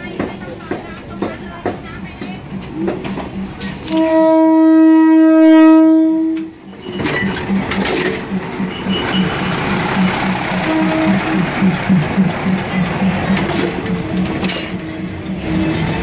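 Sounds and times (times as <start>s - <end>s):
train wheels clattering: 0.0s - 4.7s, 6.2s - 16.0s
train horn blast: 3.8s - 6.6s, 10.5s - 11.6s.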